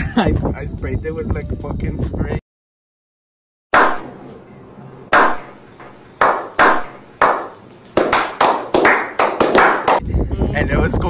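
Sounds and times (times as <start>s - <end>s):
hand claps echoing: 5.1s - 10.0s.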